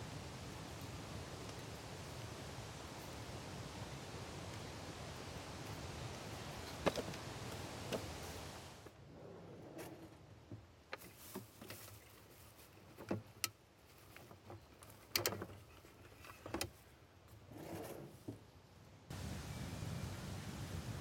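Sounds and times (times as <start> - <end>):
campfire crackling: 0.0 - 8.9
soft rustles: 9.6 - 18.4.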